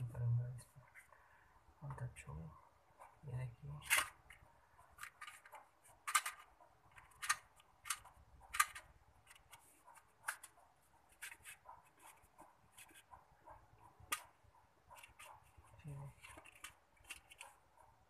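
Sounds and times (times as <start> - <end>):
cardboard matchbox scraping and tapping: 3.8 - 13.2, 14.0 - 17.6.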